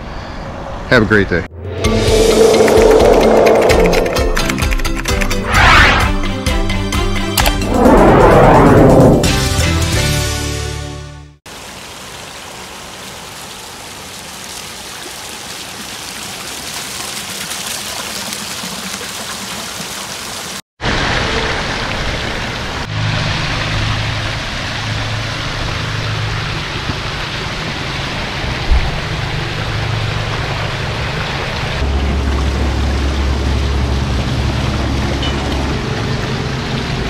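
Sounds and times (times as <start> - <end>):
low rumble: 1.4 - 6.2
waterfall splashing and trickling: 11.5 - 37.0.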